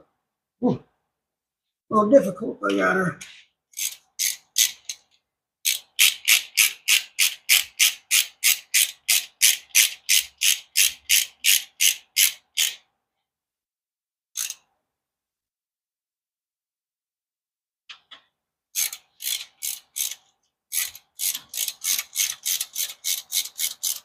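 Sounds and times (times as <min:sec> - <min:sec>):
ratchet wrench clicking: 0:03.8 - 0:05.0, 0:05.7 - 0:12.8, 0:14.4 - 0:14.6, 0:18.8 - 0:24.0.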